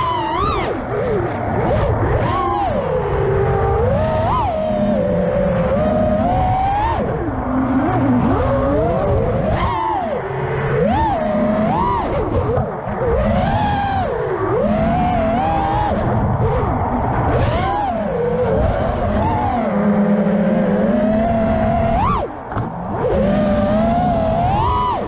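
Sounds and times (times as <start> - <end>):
drone motors whining: 0.0 - 25.0.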